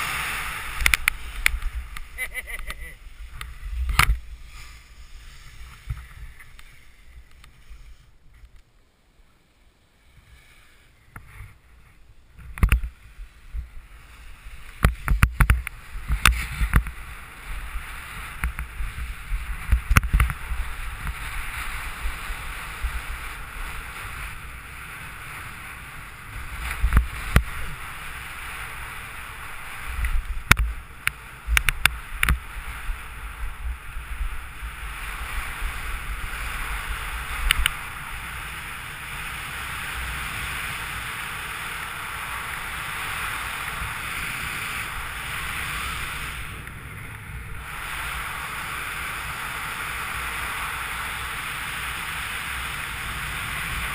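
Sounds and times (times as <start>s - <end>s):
wind rushing over microphone: 0.0s - 8.4s, 10.2s - 53.9s
skis scraping on snow: 0.0s - 8.5s, 10.0s - 53.9s
skis knocking on bumps: 14.7s - 17.1s, 17.9s - 24.3s, 29.8s - 33.6s.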